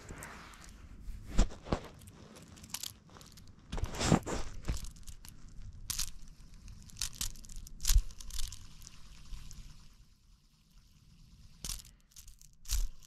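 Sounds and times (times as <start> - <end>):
hands brushing fabric sleeves: 0.0 - 4.9
hands handling fidget spinner: 0.0 - 9.8, 11.6 - 13.0.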